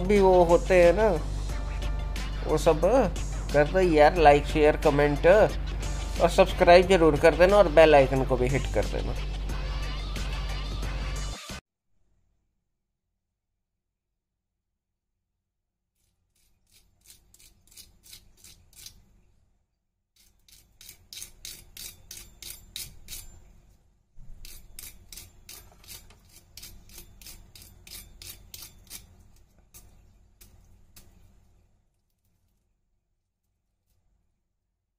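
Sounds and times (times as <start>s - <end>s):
fork scraping crispy coating: 16.0s - 19.0s, 24.2s - 30.0s.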